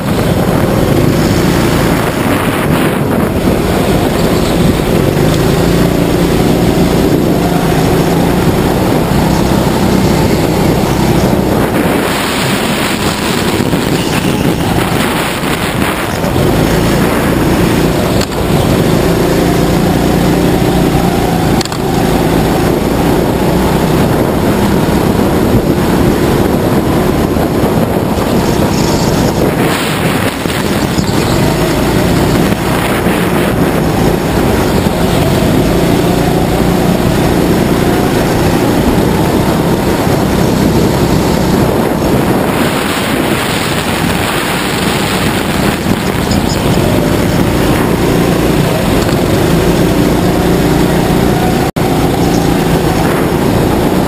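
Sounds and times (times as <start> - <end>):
go-kart motor revving: 0.0 - 54.0
wind buffeting microphone: 0.0 - 54.0.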